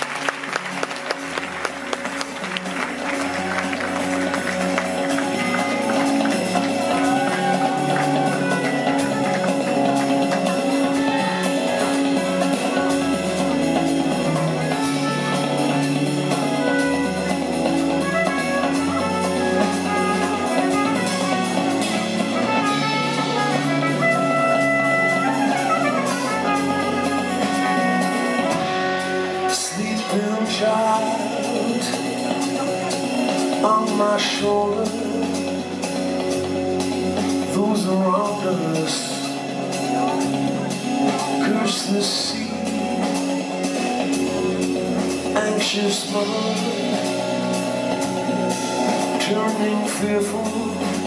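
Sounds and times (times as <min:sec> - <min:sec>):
drum kit: 0:00.0 - 0:51.0
electric bass: 0:00.0 - 0:51.0
electric guitar: 0:00.0 - 0:51.0
trumpet melody: 0:02.4 - 0:31.8.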